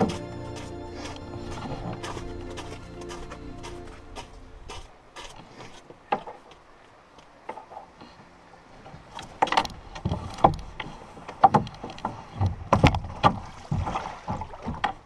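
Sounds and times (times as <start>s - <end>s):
footsteps in snow: 0.0s - 5.9s
hollow knocks of canoe hull: 11.4s - 15.0s.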